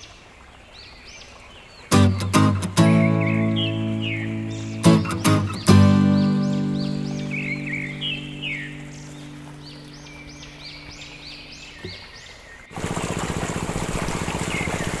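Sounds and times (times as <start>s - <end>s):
small birds chirping: 0.0s - 12.8s, 14.2s - 15.0s
small engine running: 12.7s - 15.0s.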